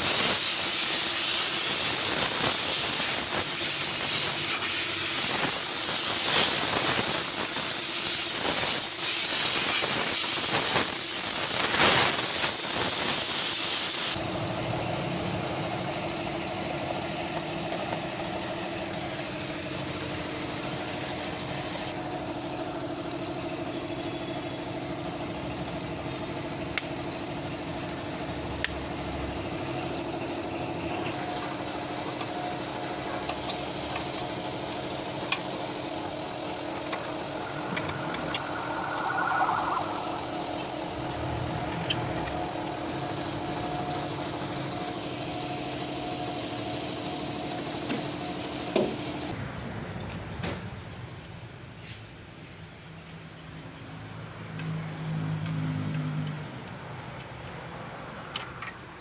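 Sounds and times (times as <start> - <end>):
compressed air hissing: 0.0 - 14.2
engine hum: 32.2 - 45.2.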